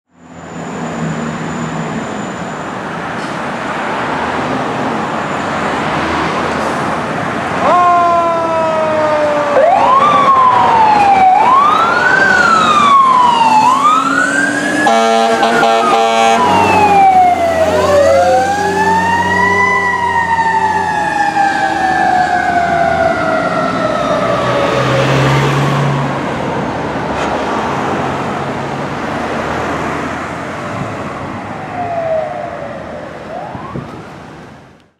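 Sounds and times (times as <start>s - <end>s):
fire engine siren: 7.6s - 26.4s, 30.2s - 34.9s
horn blast: 14.8s - 18.6s.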